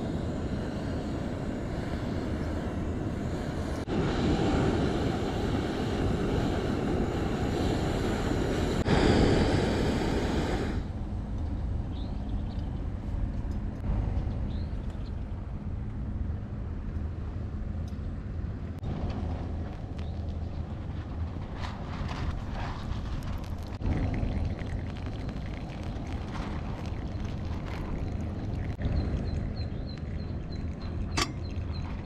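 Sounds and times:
gas burner hissing: 0.0 - 11.0
wind rumble on microphone: 0.0 - 32.0.

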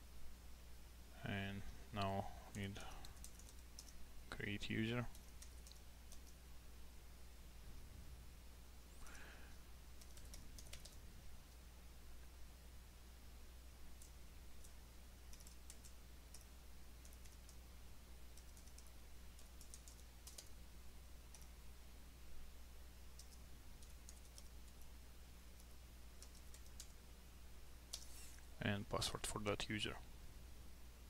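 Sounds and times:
low steady hum: 0.0 - 31.0
faint keyboard typing: 2.0 - 6.4, 9.0 - 11.7, 13.9 - 17.7, 18.3 - 20.6, 21.2 - 21.6, 23.1 - 27.0, 27.8 - 28.5.

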